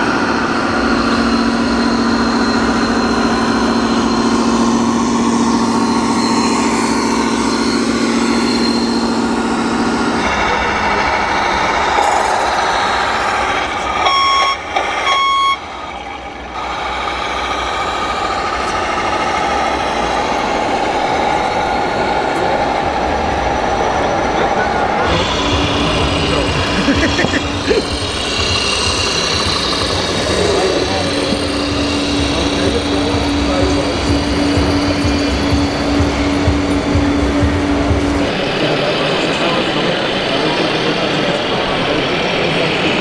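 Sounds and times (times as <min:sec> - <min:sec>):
hall noise: 0:00.0 - 0:43.0
toy truck engine hum: 0:00.0 - 0:43.0
reversing alarm beeps: 0:00.5 - 0:10.2, 0:13.0 - 0:15.8.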